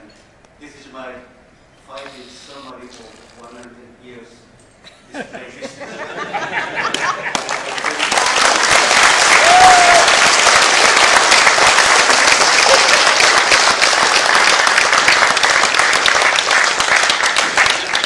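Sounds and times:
audience applauding: 0:06.9 - 0:18.0.

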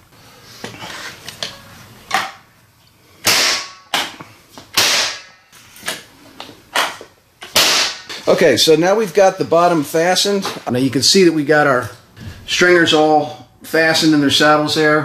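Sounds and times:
nail gun bangs: 0:03.2 - 0:04.1, 0:04.7 - 0:05.3, 0:07.5 - 0:08.1.

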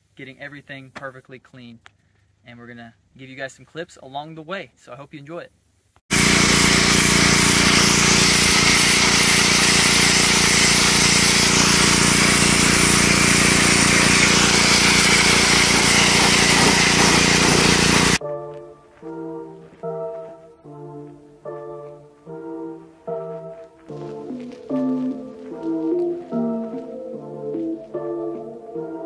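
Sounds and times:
hiss of water spray: 0:06.1 - 0:18.2
pressure washer motor hum: 0:06.1 - 0:18.2.

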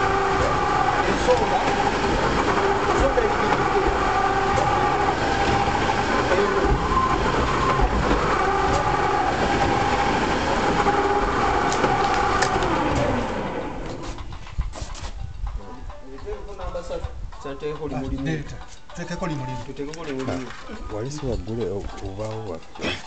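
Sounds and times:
press machine running with whine: 0:00.0 - 0:14.3.

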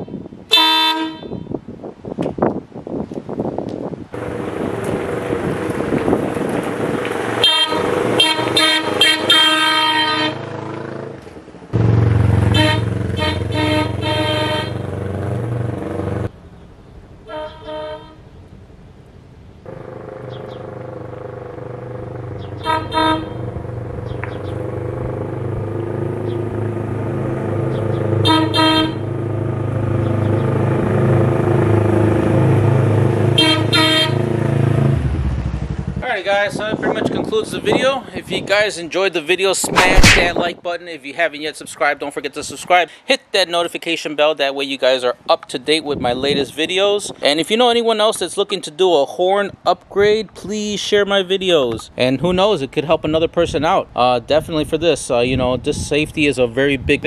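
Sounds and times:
electric air horn blasts: 0:00.0 - 0:01.6, 0:07.3 - 0:10.5, 0:12.4 - 0:15.0, 0:17.2 - 0:18.3, 0:22.5 - 0:23.6, 0:28.2 - 0:29.3, 0:33.3 - 0:34.3
motorcycle engine running: 0:04.2 - 0:16.3, 0:19.7 - 0:36.0.

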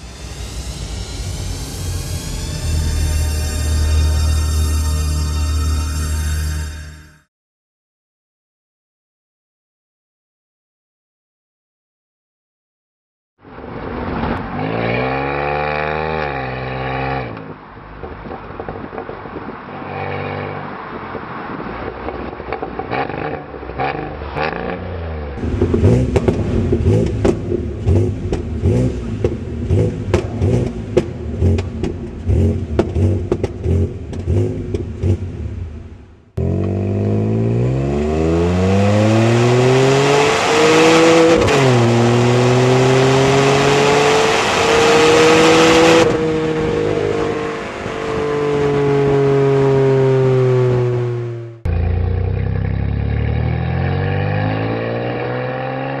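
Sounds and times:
car engine revving: 0:22.1 - 0:56.0.

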